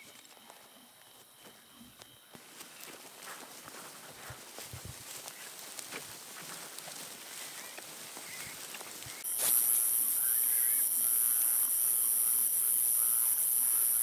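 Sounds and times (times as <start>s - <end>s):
footsteps in grass: 0.0s - 11.7s
night insects chorus: 0.0s - 14.0s
carcass dragged through grass: 2.4s - 10.8s
faint wavering calls: 7.3s - 14.0s.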